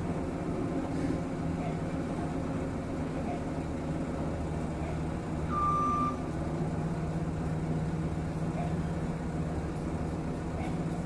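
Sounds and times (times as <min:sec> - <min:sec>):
road roller engine running: 0:00.0 - 0:11.0
short high beep: 0:05.5 - 0:06.3.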